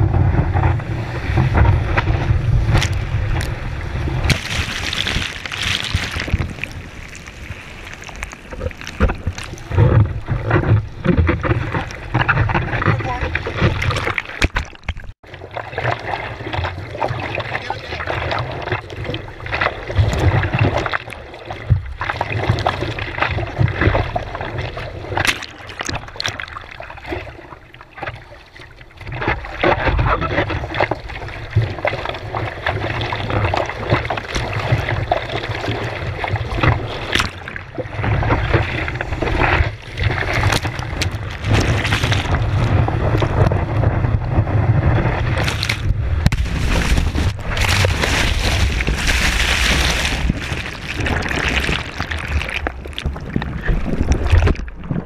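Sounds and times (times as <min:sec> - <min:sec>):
seawater sloshing and splashing: 0:00.3 - 0:55.0
breaking wave whitewater: 0:01.1 - 0:10.4, 0:36.8 - 0:54.4
sharp splashes: 0:02.6 - 0:10.3, 0:12.8 - 0:15.2, 0:34.2 - 0:43.5, 0:45.3 - 0:55.0.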